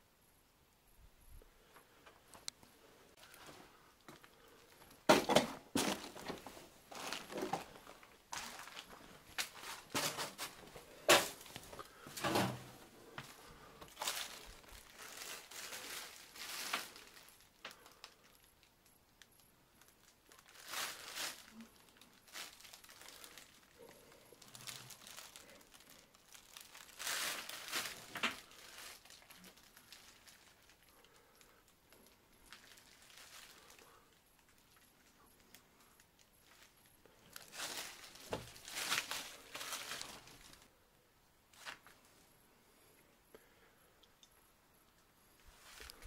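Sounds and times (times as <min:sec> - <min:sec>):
footsteps crunching over litter: 0:03.2 - 0:17.4, 0:20.3 - 0:23.6, 0:24.4 - 0:30.8, 0:36.4 - 0:40.7, 0:41.5 - 0:42.0.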